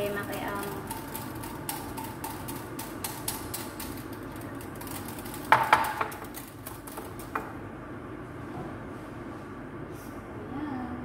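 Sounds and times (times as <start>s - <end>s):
utensil stirring in glass jug: 0.0s - 7.6s.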